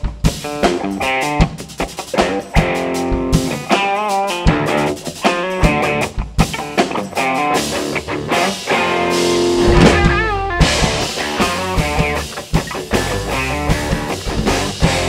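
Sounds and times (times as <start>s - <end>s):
bass guitar: 0.0s - 15.0s
drums: 0.0s - 15.0s
electric guitar riff: 0.0s - 15.0s.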